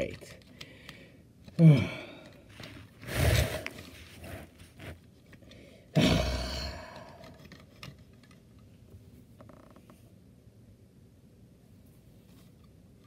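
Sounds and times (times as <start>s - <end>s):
person sighing heavily: 0.7s - 2.5s, 5.7s - 7.4s.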